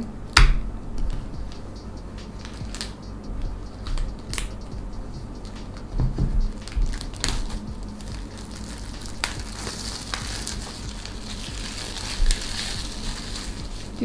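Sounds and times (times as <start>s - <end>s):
plastic shrink-wrap crinkling: 6.6s - 14.0s.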